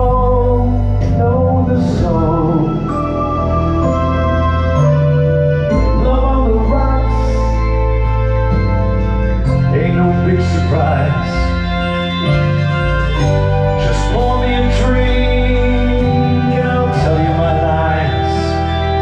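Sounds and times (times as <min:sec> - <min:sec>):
man singing into a microphone: 0:00.0 - 0:04.4, 0:05.7 - 0:07.8, 0:09.6 - 0:11.8, 0:13.7 - 0:19.0
electric bass line: 0:00.0 - 0:19.0
sustained chords: 0:00.0 - 0:19.0.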